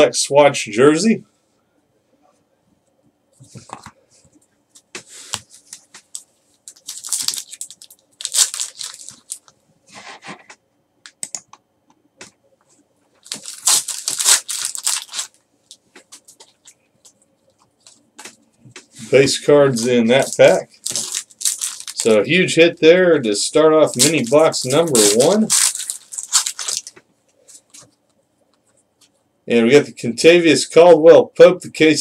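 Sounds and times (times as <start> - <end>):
foil wrapper tearing and crinkling: 6.1 - 9.5, 13.2 - 15.4, 19.7 - 22.3, 23.8 - 27.0.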